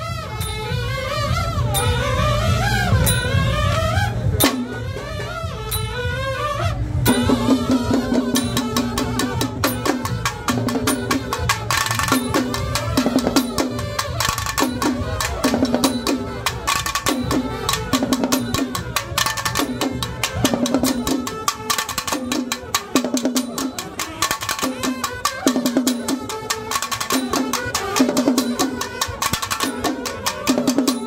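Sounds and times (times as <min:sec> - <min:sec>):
fast drum rhythm: 0:07.1 - 0:31.0.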